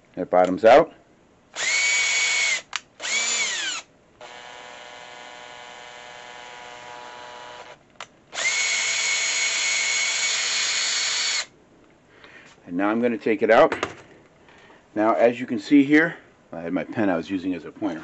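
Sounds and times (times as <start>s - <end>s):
cordless drill whirring: 1.6s - 11.5s.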